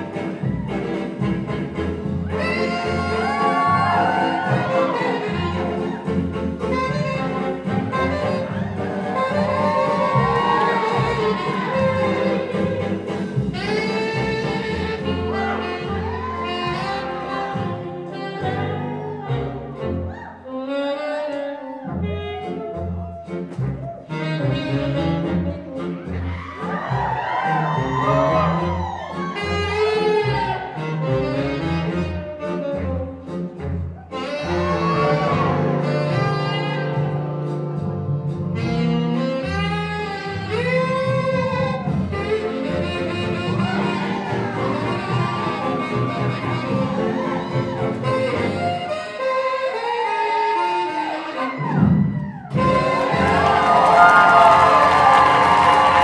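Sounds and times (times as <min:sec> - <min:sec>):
sliding melody line: 0:00.0 - 0:20.0, 0:29.4 - 0:51.2
jazzy music with horns: 0:00.0 - 0:56.0.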